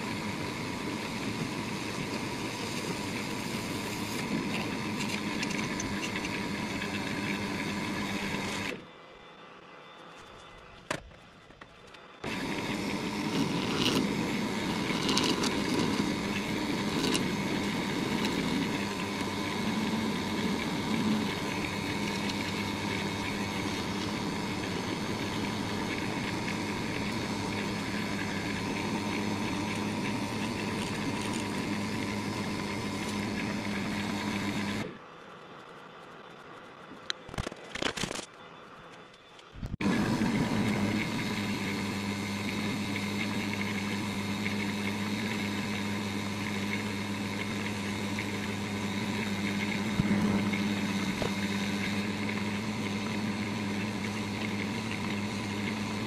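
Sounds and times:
lathe humming: 0:00.0 - 0:08.8, 0:12.2 - 0:35.0, 0:39.7 - 0:56.0
tool cutting wax: 0:12.2 - 0:34.9, 0:39.8 - 0:56.0.

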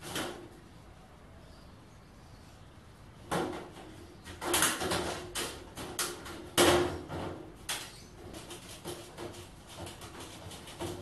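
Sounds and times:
sheet-metal shelving clanking: 0:03.3 - 0:11.0.

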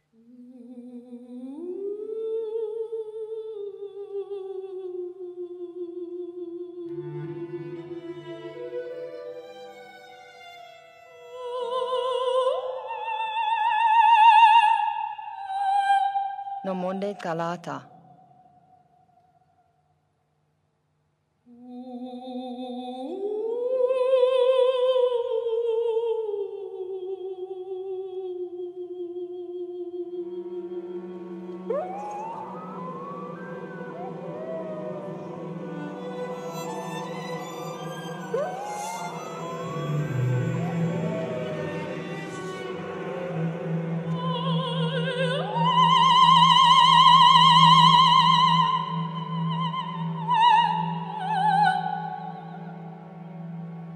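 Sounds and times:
person singing a long wordless note: 0:21.5 - 0:52.8
low sustained drone: 0:30.1 - 0:53.9.

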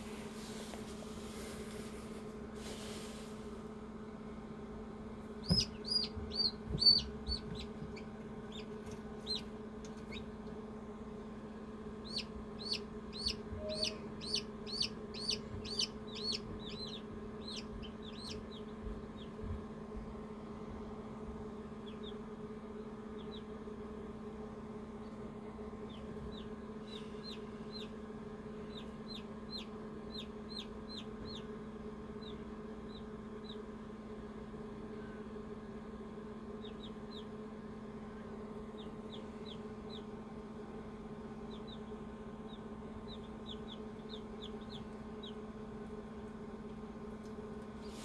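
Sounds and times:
incubator humming: 0:00.0 - 0:48.0
chicks peeping: 0:05.4 - 0:10.4, 0:12.0 - 0:19.7, 0:21.7 - 0:22.3, 0:23.0 - 0:23.6, 0:25.8 - 0:28.0, 0:28.6 - 0:33.6, 0:36.6 - 0:37.4, 0:38.6 - 0:40.2, 0:41.4 - 0:45.6.

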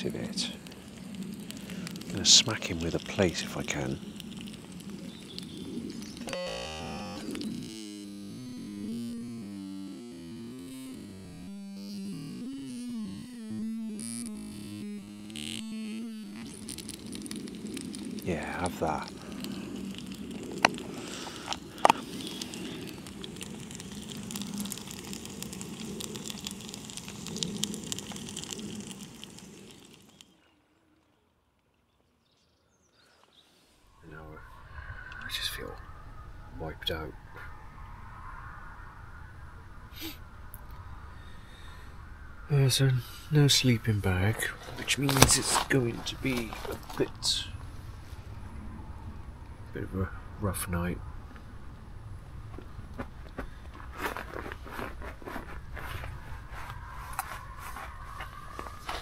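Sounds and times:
synthesizer music low notes: 0:06.2 - 0:18.3
food sizzling in a pan: 0:20.9 - 0:30.2.

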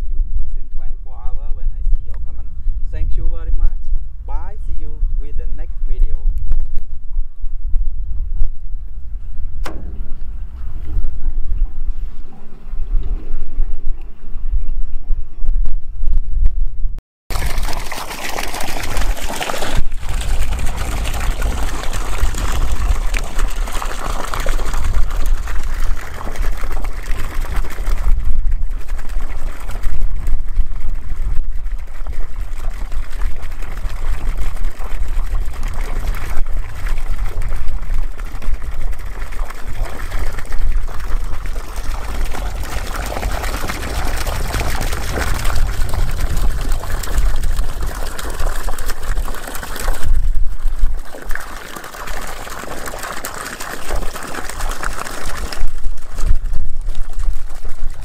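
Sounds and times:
water gushing and splashing: 0:17.3 - 0:58.0.

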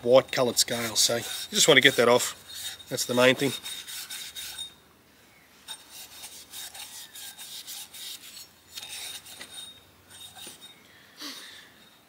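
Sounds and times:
abrasive pad scrubbing metal: 0:00.2 - 0:04.8, 0:05.7 - 0:10.8.

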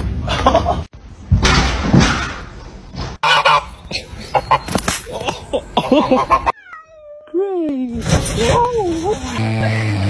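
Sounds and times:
geese honking: 0:03.2 - 0:03.8.

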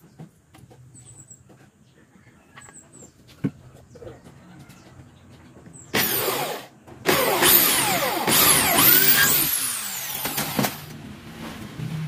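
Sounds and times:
electric drill boring into wood: 0:05.9 - 0:10.8.

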